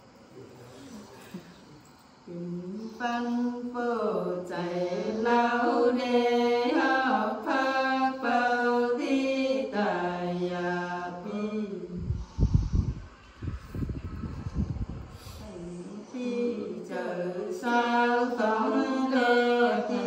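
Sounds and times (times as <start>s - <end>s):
woman singing unaccompanied: 2.2s - 12.2s, 15.4s - 20.0s
singer breathing: 12.0s - 13.9s, 15.0s - 16.2s.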